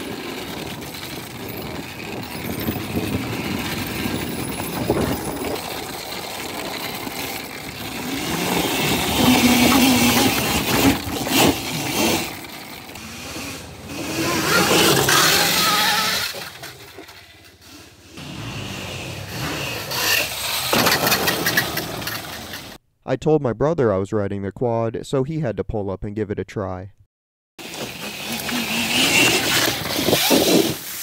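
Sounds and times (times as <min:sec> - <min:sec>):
drive chain rattling: 0:00.0 - 0:13.0.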